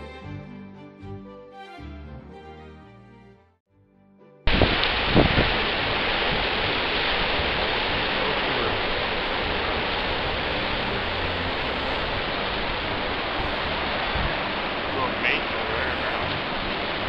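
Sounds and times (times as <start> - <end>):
ocean waves breaking on rocks: 4.5 - 17.0.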